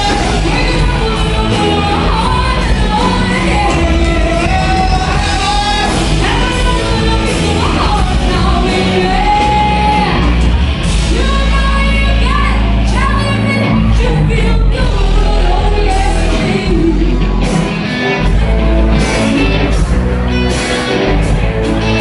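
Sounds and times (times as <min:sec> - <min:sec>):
woman singing: 0:00.0 - 0:17.3
live rock band playing: 0:00.0 - 0:22.0.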